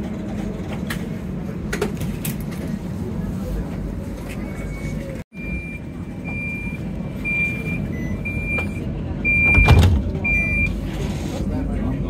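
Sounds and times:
tram hum: 0.0 - 12.0
tram door warning beeps: 5.3 - 10.9.

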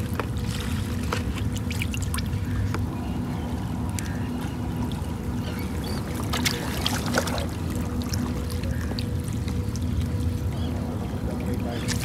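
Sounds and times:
faint hum: 0.0 - 12.0
water lapping against rocks: 3.8 - 12.0.

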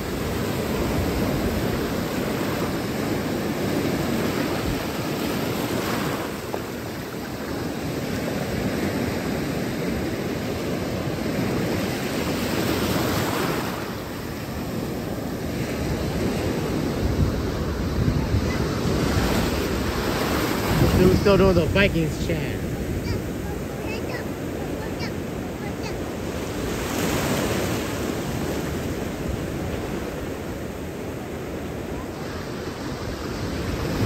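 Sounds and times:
surf washing onto beach: 0.0 - 34.0
wind buffeting microphone: 14.4 - 22.0.

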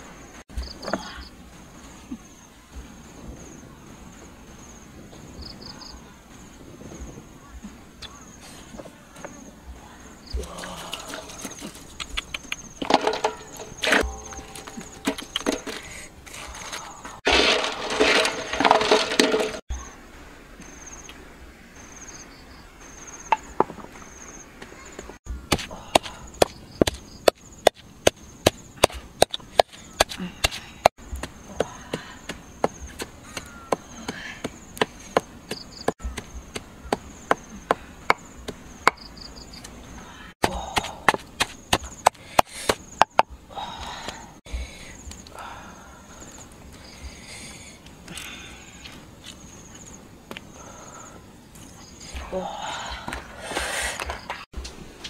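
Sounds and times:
chopping on wood: 40.4 - 43.3.

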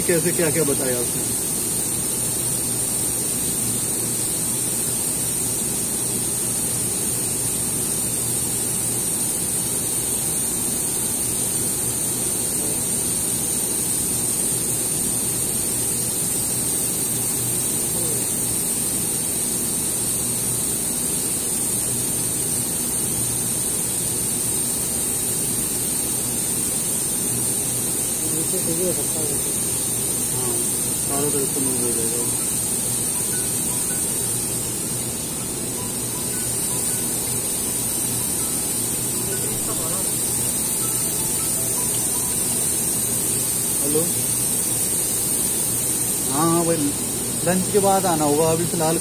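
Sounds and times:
low machine hum: 0.0 - 4.3, 27.2 - 49.0
high-pitched machine whine: 0.0 - 49.0
steady machine hiss: 0.0 - 49.0.

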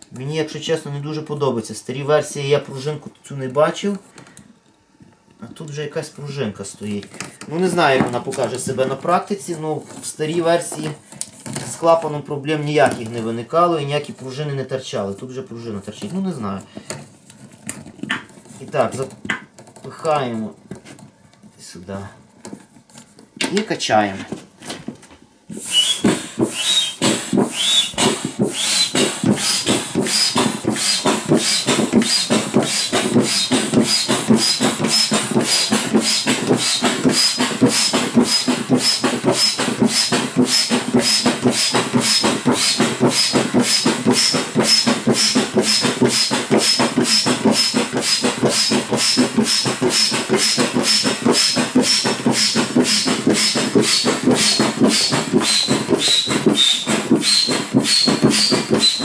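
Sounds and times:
foot bellows pump strokes: 5.6 - 21.1, 25.5 - 59.0
pump squeaking: 25.5 - 59.0.

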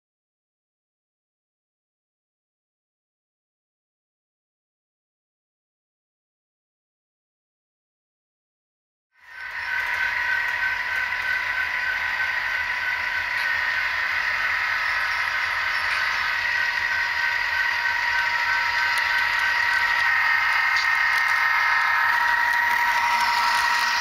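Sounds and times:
low hum: 9.2 - 24.0
model train high-pitched whine: 9.2 - 24.0.

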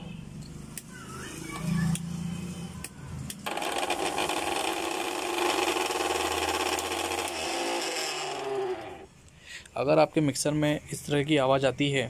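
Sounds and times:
mixer grinder motor running: 3.4 - 9.1.

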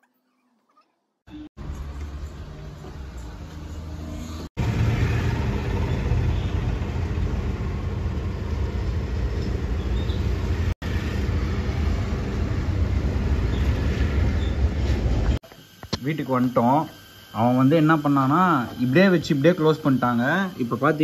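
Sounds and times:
car road and engine rumble: 1.6 - 15.4.

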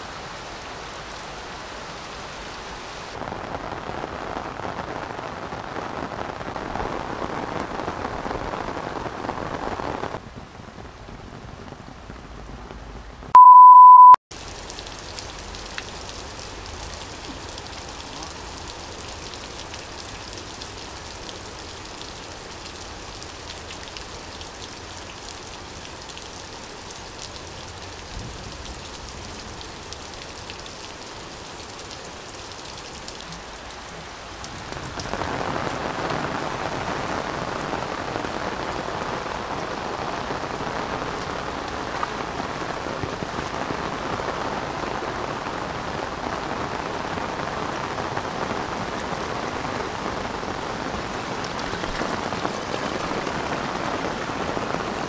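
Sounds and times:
heavy rain falling: 0.0 - 13.3, 14.3 - 55.0.

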